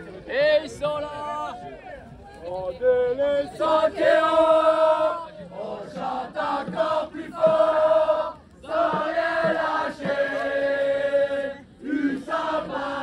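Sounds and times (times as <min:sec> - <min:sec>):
choir singing slow song: 0:03.2 - 0:13.0.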